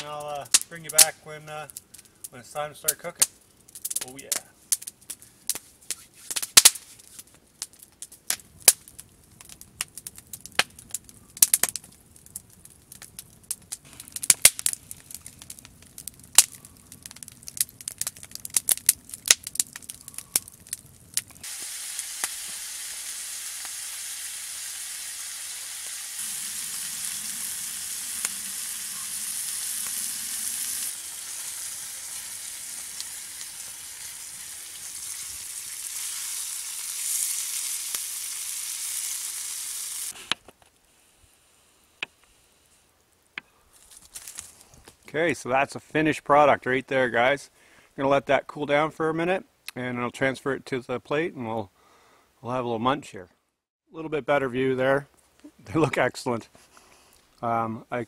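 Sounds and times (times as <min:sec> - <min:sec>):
campfire crackling and snapping: 0:00.0 - 0:40.9, 0:42.9 - 0:45.1
meat sizzling in a frying pan: 0:21.4 - 0:40.2.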